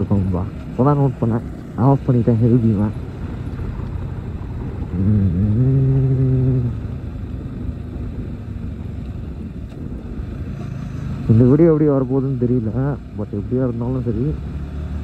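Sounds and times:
moving vehicle rumble: 0.0 - 15.0
man humming a note: 4.9 - 6.9.

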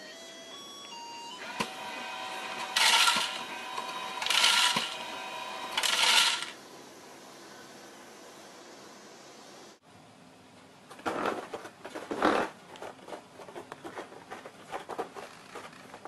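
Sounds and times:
feeder motor humming: 1.4 - 6.6
kibble pouring into plastic tray: 5.8 - 6.5.

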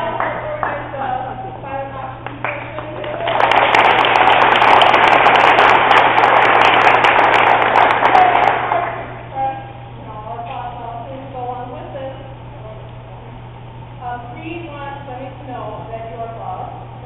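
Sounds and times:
audience applause: 2.2 - 9.2.

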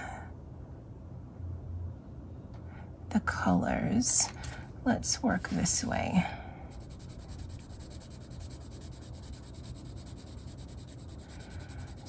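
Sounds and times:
colored pencil scratching paper: 6.7 - 12.0.

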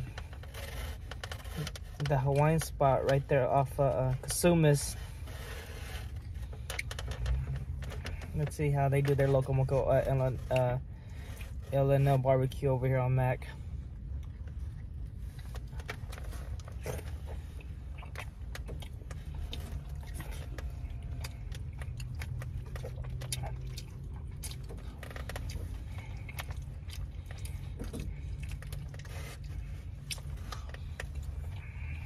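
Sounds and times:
steady low hum: 0.0 - 32.0
chewing: 14.0 - 32.0.

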